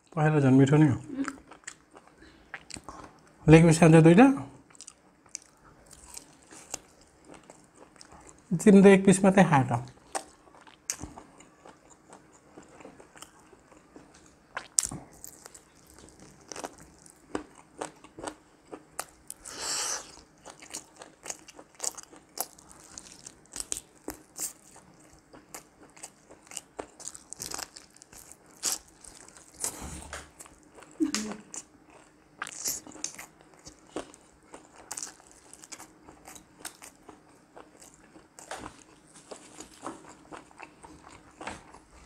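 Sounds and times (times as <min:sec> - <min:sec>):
chewing and mouth smacks: 0:01.2 - 0:03.3, 0:10.1 - 0:19.4.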